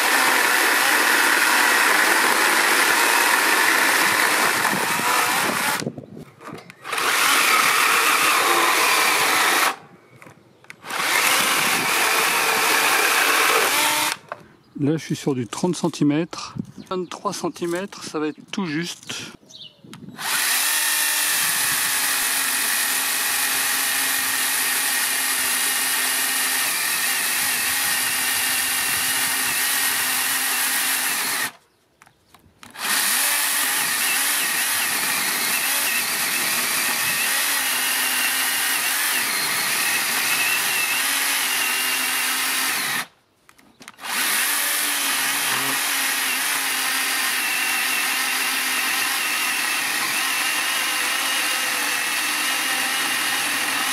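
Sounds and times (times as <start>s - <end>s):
electric chainsaw cutting log: 0.0s - 9.8s, 10.7s - 14.4s, 20.2s - 31.6s, 32.6s - 43.1s, 43.9s - 53.9s.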